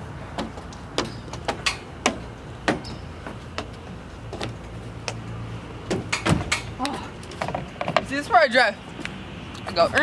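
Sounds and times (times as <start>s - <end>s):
footsteps on climbing structure: 0.3s - 5.3s.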